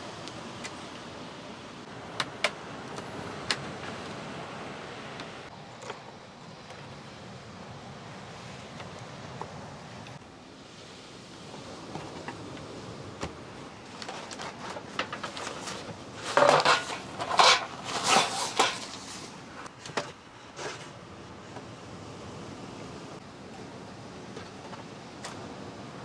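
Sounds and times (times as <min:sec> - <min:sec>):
metal tray handled: 0:15.0 - 0:19.2.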